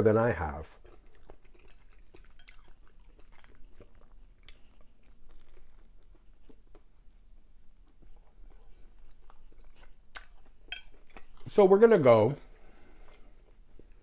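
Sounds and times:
person chewing food: 0:00.6 - 0:11.6, 0:12.3 - 0:14.0.

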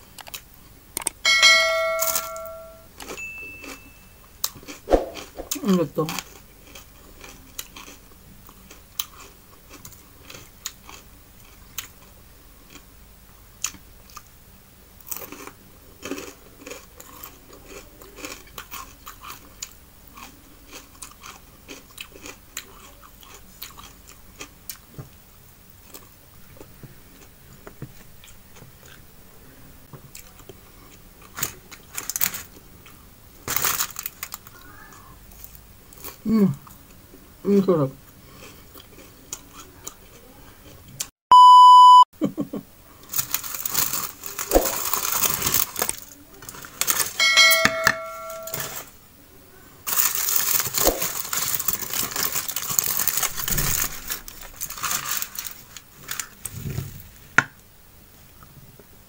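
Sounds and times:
person chewing crunchy fried fish: 0:04.4 - 0:14.3, 0:15.0 - 0:25.1, 0:25.7 - 0:29.1, 0:30.0 - 0:37.2, 0:38.1 - 0:41.1, 0:43.0 - 0:47.2, 0:49.9 - 0:56.7.

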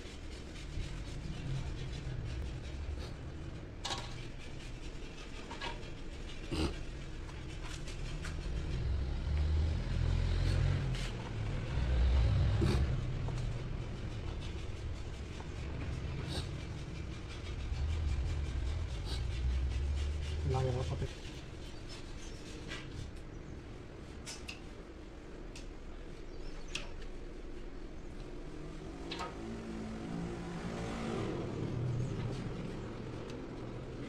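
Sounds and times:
low rumble: 0:00.0 - 0:05.2, 0:06.5 - 0:21.6.

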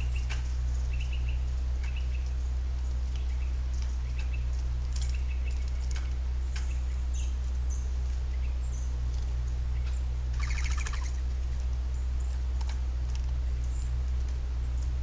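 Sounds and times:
small birds chirping: 0:00.0 - 0:12.6, 0:13.4 - 0:15.0
steady low hum: 0:00.0 - 0:15.0
woodpecker tapping on wire cage: 0:08.9 - 0:15.0.

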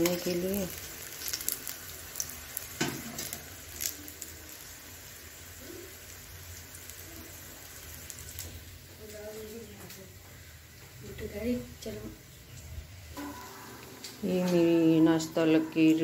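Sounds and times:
food sizzling in hot oil: 0:00.0 - 0:16.0.

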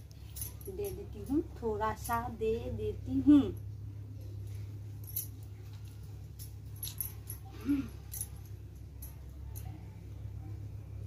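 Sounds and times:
steady low hum: 0:00.0 - 0:11.0
bangles knocking together: 0:04.4 - 0:09.8.

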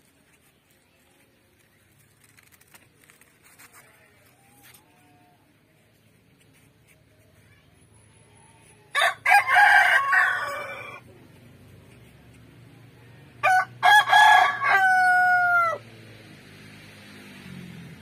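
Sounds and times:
rooster crowing: 0:08.9 - 0:11.0, 0:13.4 - 0:15.8.

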